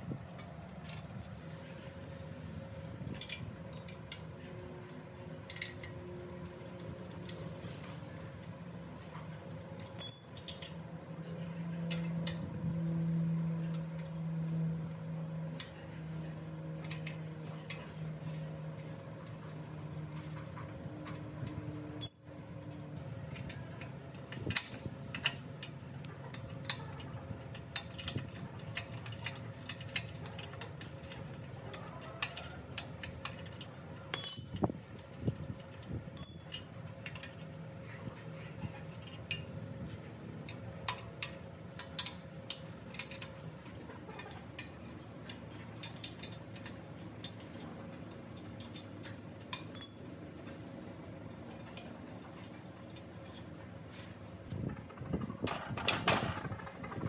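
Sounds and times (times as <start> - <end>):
ringing metallic clinks: 10.0 - 11.1, 34.1 - 34.7, 36.2 - 36.7
metal tools clicking and tapping: 10.0 - 11.2, 21.0 - 35.1, 35.7 - 37.5, 38.9 - 39.7, 40.5 - 43.4, 44.2 - 50.2
low steady hum: 32.2 - 57.0.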